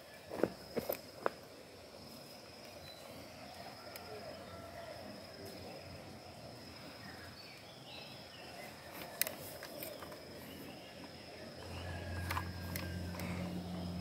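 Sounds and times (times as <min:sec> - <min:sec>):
high-pitched insect drone: 0:11.4 - 0:14.0.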